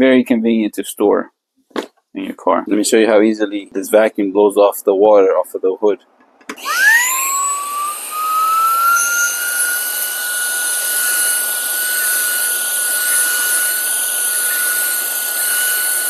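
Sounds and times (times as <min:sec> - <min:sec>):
blower motor high whine: 0:06.5 - 0:16.0.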